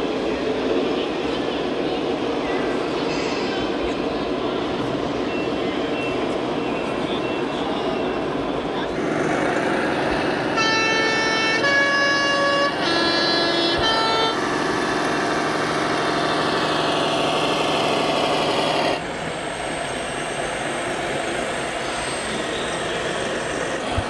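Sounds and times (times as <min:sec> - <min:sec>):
steady engine running sound: 0:00.0 - 0:24.0
three-tone post horn tune: 0:09.0 - 0:19.0.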